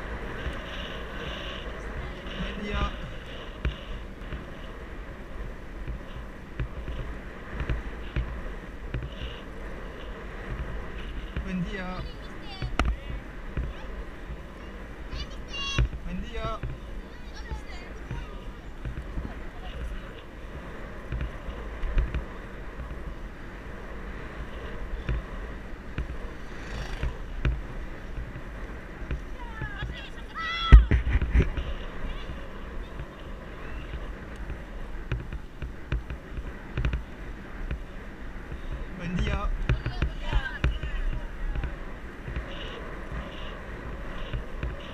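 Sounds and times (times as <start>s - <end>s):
road rumble: 0.0s - 44.9s
wind noise: 0.0s - 44.9s.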